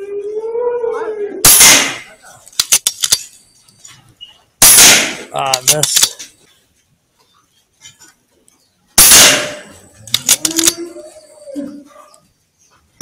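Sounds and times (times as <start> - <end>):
air rifle shots: 1.5 - 3.2, 4.6 - 6.1, 9.0 - 9.7.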